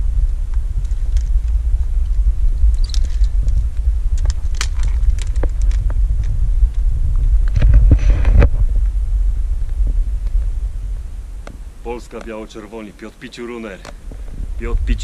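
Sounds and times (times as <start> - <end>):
wind buffeting microphone: 0.0 - 15.0
clicks and crackles: 0.4 - 9.0, 9.6 - 10.5, 11.4 - 12.6, 13.2 - 14.7.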